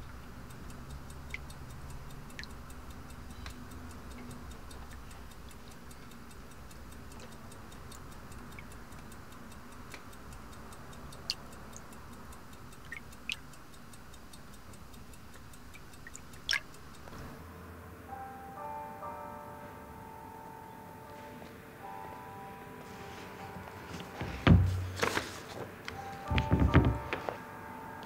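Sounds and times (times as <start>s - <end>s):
clock ticking: 0.0s - 17.2s, 25.9s - 28.0s
sharp clicks: 0.0s - 17.2s
low steady hum: 0.0s - 28.0s.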